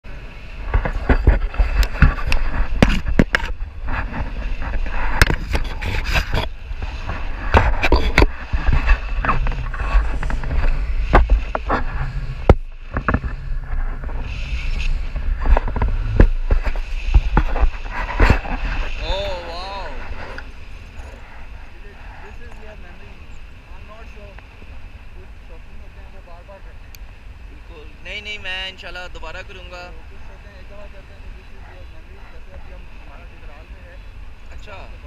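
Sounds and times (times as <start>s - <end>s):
wind buffeting a microphone: 0.0s - 35.0s
sharp pops and knocks: 0.7s - 14.2s, 15.1s - 18.8s.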